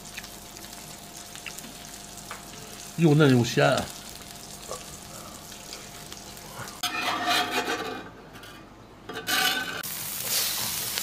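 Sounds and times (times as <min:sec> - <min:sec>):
food sizzling on a grill: 0:00.0 - 0:06.9, 0:09.8 - 0:11.0.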